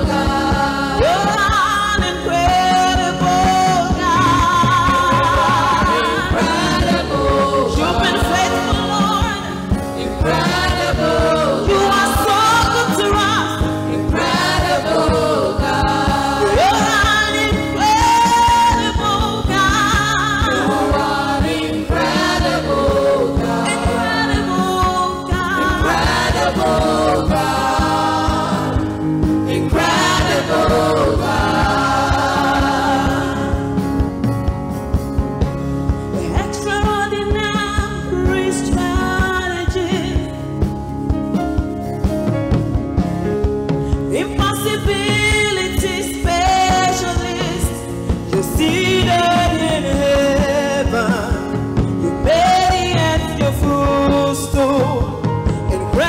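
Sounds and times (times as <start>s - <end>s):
backing vocalists: 0.0s - 34.1s
lead singer singing: 0.0s - 34.2s, 44.0s - 56.0s
band with steady beat: 0.0s - 56.0s.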